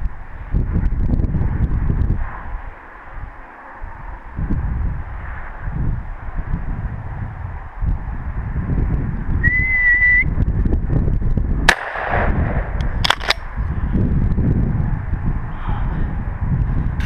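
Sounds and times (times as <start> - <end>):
whistled note: 9.4 - 10.4
shotgun shot with echo: 11.7 - 13.4
sharp clicks: 12.8 - 13.5.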